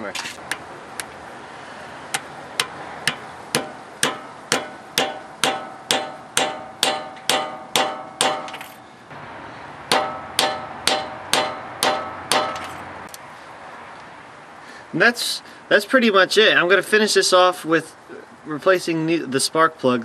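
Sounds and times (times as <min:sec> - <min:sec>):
hammer striking steel punch: 0:02.1 - 0:08.8, 0:09.9 - 0:12.8.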